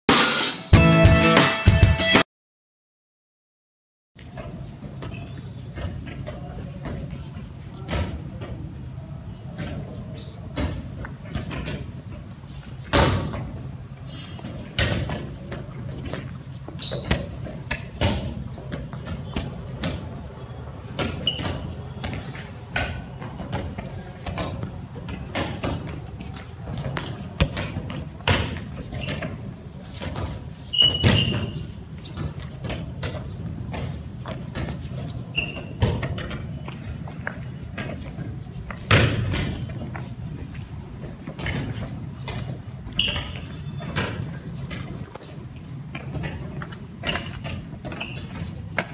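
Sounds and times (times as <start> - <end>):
high squeak: 16.8 - 17.3, 30.7 - 31.7, 35.3 - 35.8, 43.0 - 43.8.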